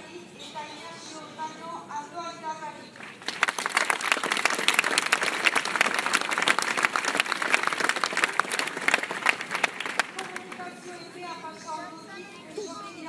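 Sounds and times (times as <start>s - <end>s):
crowd applauding: 3.0s - 10.7s.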